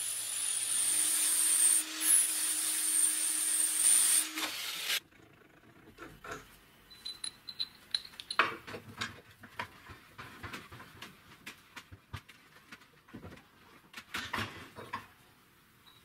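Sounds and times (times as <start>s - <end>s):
small steel parts clinking: 6.9s - 8.6s.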